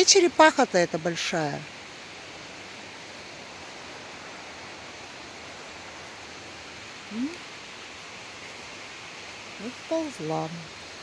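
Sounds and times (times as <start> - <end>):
outdoor background hiss: 0.0 - 11.0
woman's short rising vocal sound: 7.1 - 7.4.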